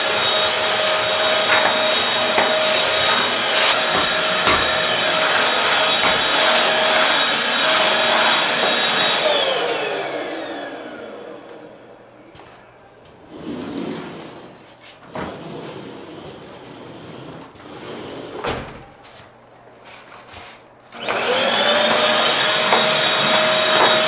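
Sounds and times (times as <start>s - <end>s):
vacuum cleaner running: 0.0s - 14.6s, 20.9s - 24.0s
knocks: 1.4s - 5.1s.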